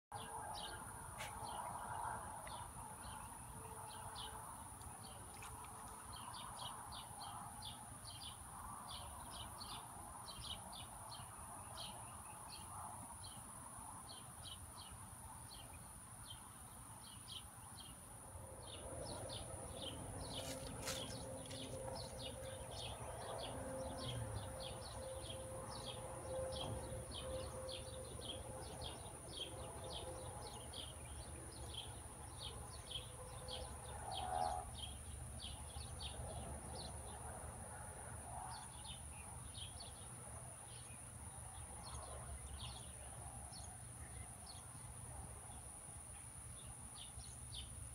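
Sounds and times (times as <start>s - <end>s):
small birds chirping: 18.6s - 37.1s.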